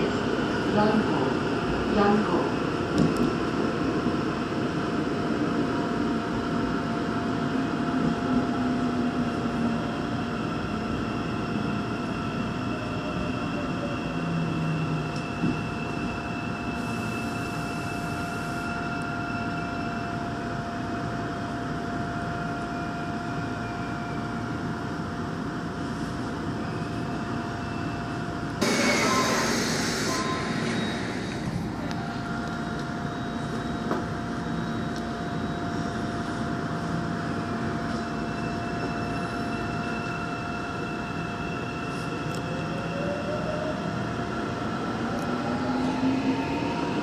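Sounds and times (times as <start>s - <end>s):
subway train rumble: 0.0s - 47.0s
high whine: 28.6s - 34.0s.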